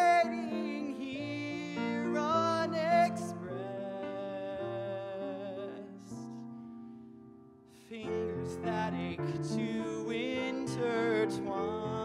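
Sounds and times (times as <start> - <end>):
man singing with vibrato: 0.0 - 6.4, 7.8 - 12.0
soft piano accompaniment: 0.0 - 12.0.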